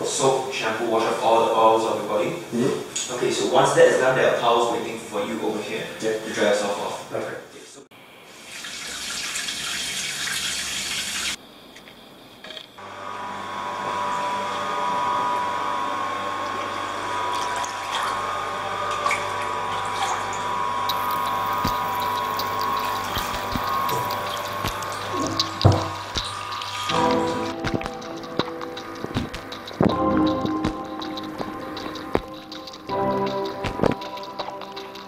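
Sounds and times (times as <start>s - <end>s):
mechanical hum: 0.0s - 35.0s
water running: 8.2s - 11.4s, 12.9s - 35.0s.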